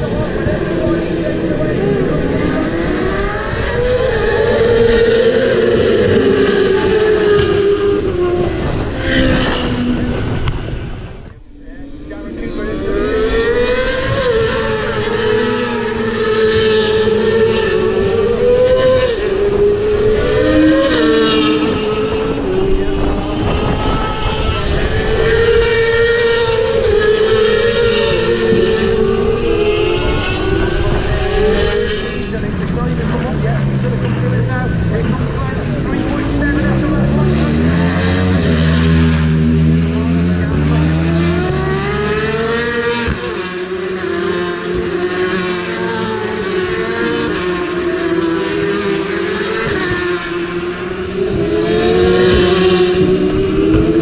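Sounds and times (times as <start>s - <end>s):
racing motorcycles passing: 0.0s - 54.0s.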